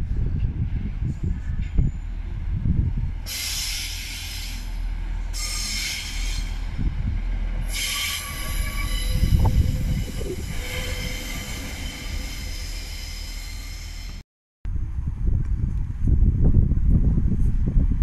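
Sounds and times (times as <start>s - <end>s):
train rumbling past: 0.0s - 14.2s
wheels squealing on rails: 3.3s - 6.8s, 7.6s - 14.2s.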